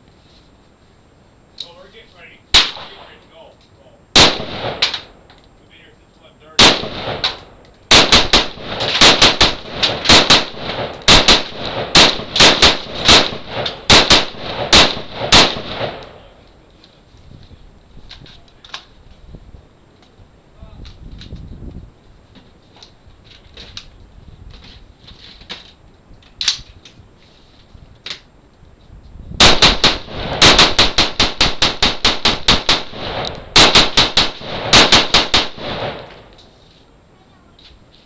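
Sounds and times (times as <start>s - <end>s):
rifle gunshots echoing: 2.5s - 3.2s, 4.2s - 5.2s, 6.6s - 16.4s, 29.4s - 36.3s.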